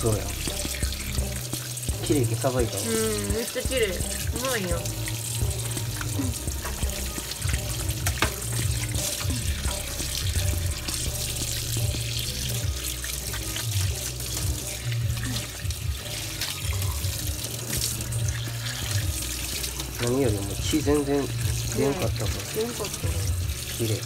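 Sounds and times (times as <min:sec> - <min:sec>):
water splashing over hands: 0:00.0 - 0:24.0
tap running into steel sink: 0:05.9 - 0:10.5.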